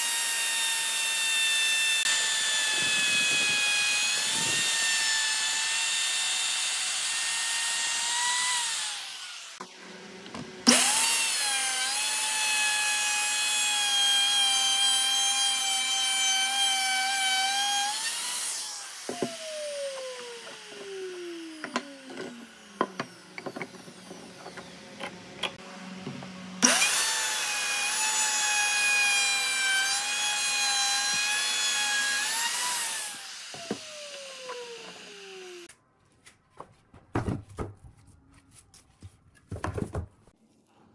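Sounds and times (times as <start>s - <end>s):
electric router whining: 0.0s - 35.7s
router spinning down: 1.6s - 9.7s, 10.6s - 13.6s, 17.3s - 25.7s, 26.6s - 35.7s.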